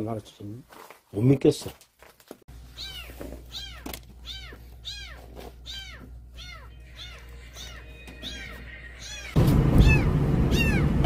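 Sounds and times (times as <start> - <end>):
kitten meowing: 2.8 - 11.0.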